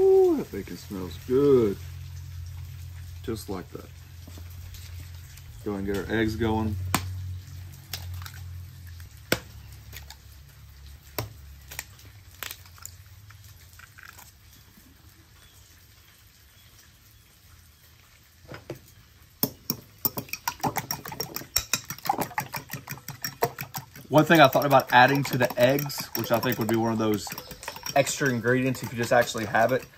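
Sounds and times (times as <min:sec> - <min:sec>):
eggs cracking on bowl rim: 0:19.4 - 0:29.9
fork beating eggs in bowl: 0:20.0 - 0:29.9.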